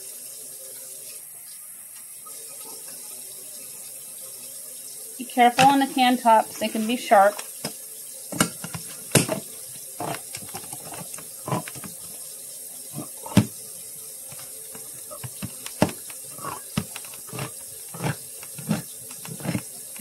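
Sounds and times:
can opener clicking: 10.0s - 12.0s, 14.3s - 20.0s.

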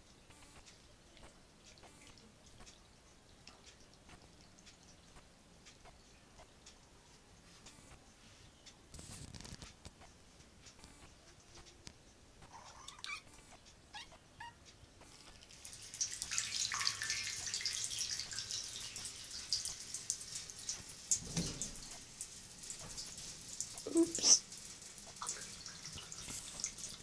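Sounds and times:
water splashes and drips: 0.7s - 6.1s, 15.2s - 27.0s
running water in bathtub: 15.2s - 27.0s.

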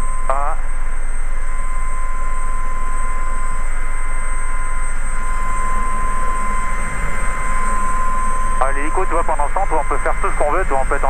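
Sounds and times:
helicopter engine and rotor noise: 0.0s - 11.0s
high-pitched whine: 0.0s - 11.0s.

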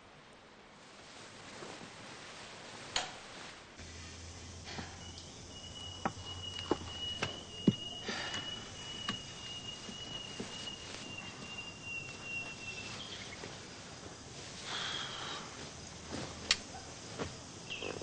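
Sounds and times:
cloth rustle: 0.6s - 3.8s, 6.8s - 17.6s
crickets trilling: 3.8s - 18.0s.

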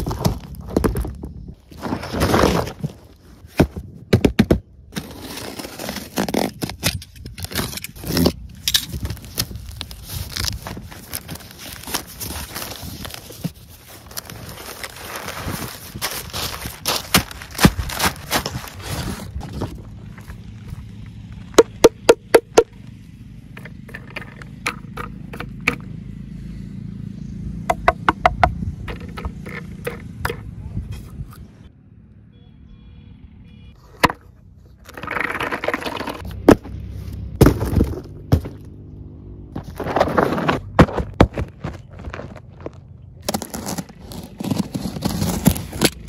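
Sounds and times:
newspaper wrapping rustling: 9.0s - 19.4s.

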